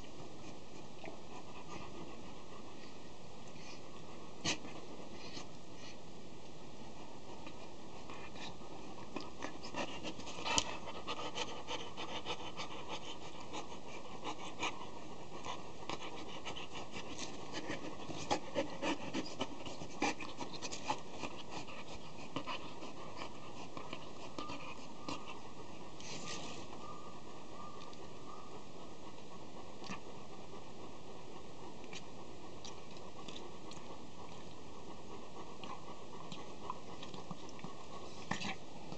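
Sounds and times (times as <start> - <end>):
dog panting: 0.2 - 6.0, 6.8 - 38.9
dog play-biting scratches and rustles: 16.0 - 22.6, 26.0 - 26.7.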